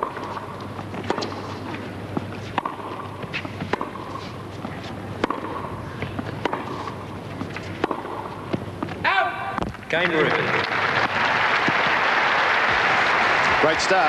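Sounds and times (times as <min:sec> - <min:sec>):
tennis ball hit by rackets: 0:00.0 - 0:04.2, 0:05.2 - 0:09.0
footsteps on a court: 0:00.0 - 0:10.0.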